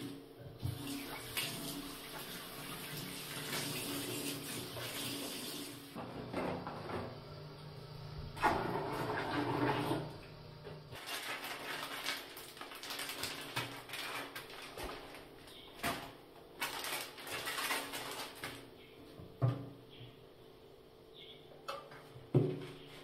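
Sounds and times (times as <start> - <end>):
liquid poured into toilet bowl: 8.4 - 10.1
rustling and handling: 10.9 - 19.2.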